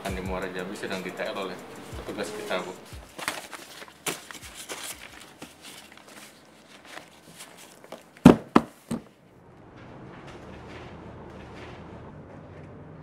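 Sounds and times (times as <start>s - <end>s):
paper and plastic folder rustling: 2.9s - 9.0s.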